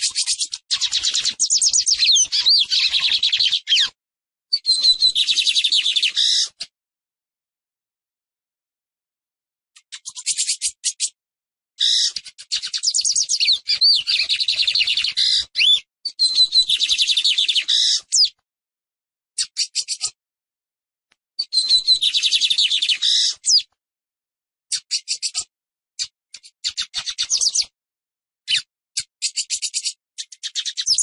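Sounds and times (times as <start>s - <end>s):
bird singing trilled phrases: 0.0s - 4.0s, 4.6s - 6.6s, 9.8s - 11.2s, 11.8s - 18.4s, 19.4s - 20.2s, 21.4s - 23.7s, 24.7s - 27.7s, 28.5s - 31.0s.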